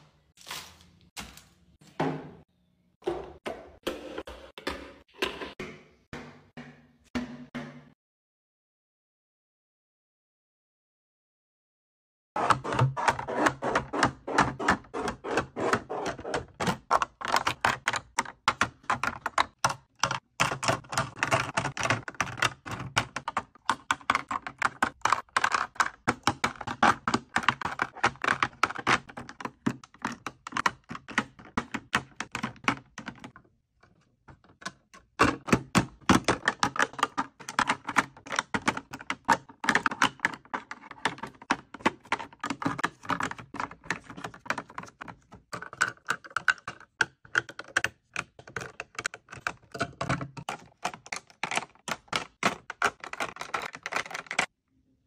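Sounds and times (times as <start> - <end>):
hard plastic clacking and tapping: 16.2 - 54.5.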